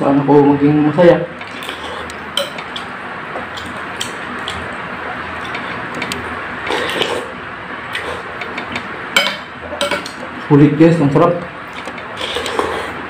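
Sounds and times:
slurping noodles: 1.4 - 2.3, 5.4 - 8.4, 11.7 - 13.0
metal spoon clinking on bowl: 9.2 - 10.2.

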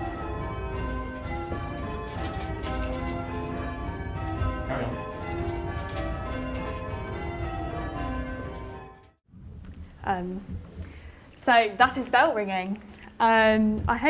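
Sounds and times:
church bells ringing: 0.0 - 9.2.

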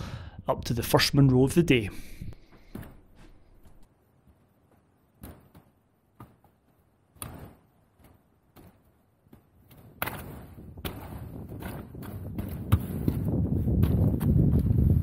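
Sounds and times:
footsteps on grassy rocky slope: 2.3 - 15.0.

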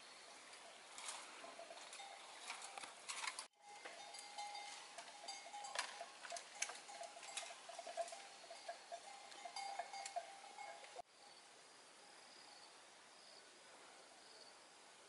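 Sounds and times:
bamboo poles clicking and knocking: 1.0 - 8.7.

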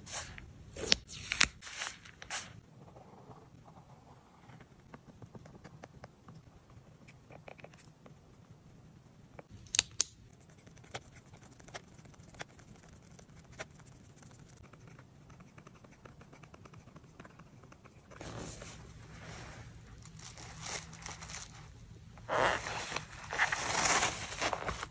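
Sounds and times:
marker pen scratching on paper: 10.3 - 18.6
paper rustling: 18.2 - 21.7, 22.6 - 24.9.

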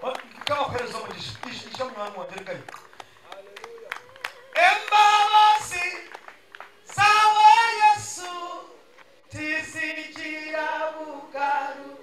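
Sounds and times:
person singing through pa: 4.1 - 6.2, 6.9 - 12.0.

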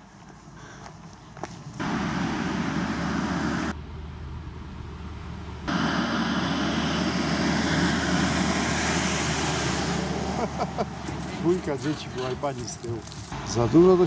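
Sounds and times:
train passing close by: 5.7 - 14.0.

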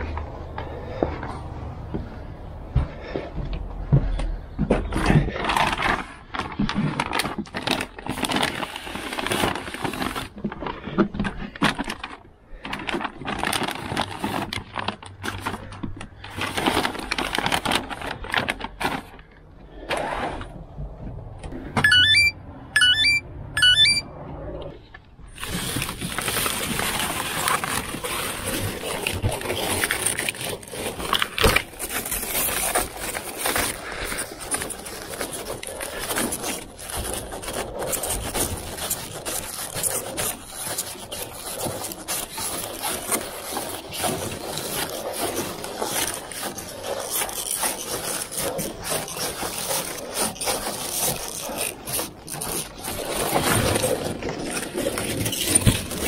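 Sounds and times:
plastic-wrapped cases rustling: 4.8 - 20.0, 25.3 - 56.0
paper bags rustling: 4.8 - 20.6, 25.3 - 56.0
short rising electronic chirps: 21.8 - 24.1.

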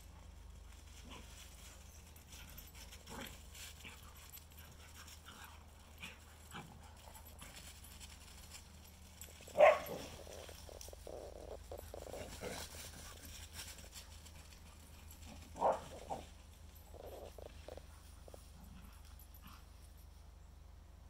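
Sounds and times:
soft dog noises: 0.0 - 20.6
dogs panting: 0.1 - 20.0
paws scrabbling on ice: 7.3 - 16.3.

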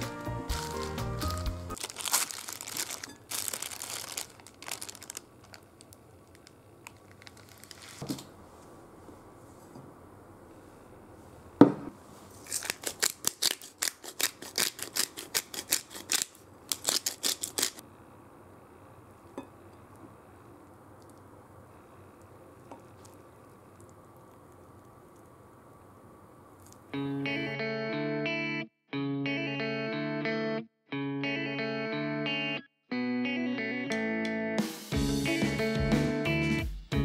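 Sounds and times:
plastic bag crinkling: 0.5 - 8.3, 12.3 - 17.8
pepper grinder clicking: 12.5 - 17.8.

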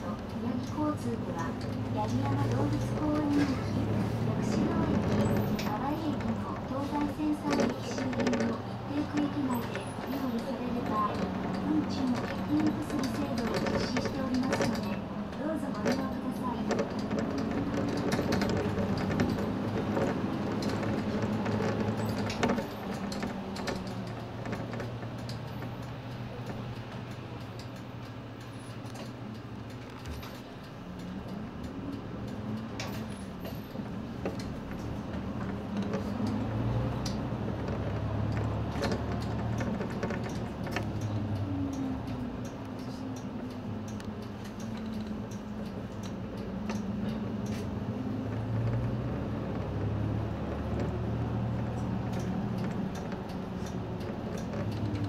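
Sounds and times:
bus engine running: 0.0 - 55.0
cabin clicks and rattles: 15.6 - 27.8, 32.6 - 55.0.

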